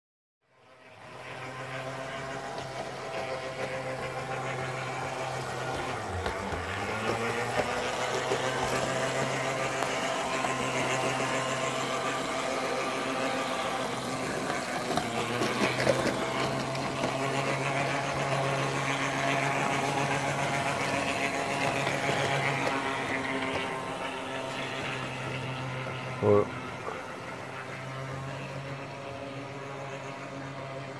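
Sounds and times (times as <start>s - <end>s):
model train humming: 0.5s - 30.9s
model train clicks: 1.8s - 24.1s.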